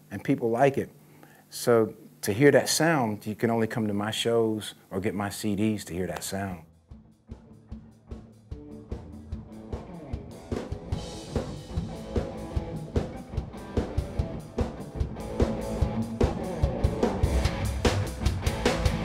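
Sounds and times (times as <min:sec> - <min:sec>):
rock band music: 0:06.9 - 0:19.0.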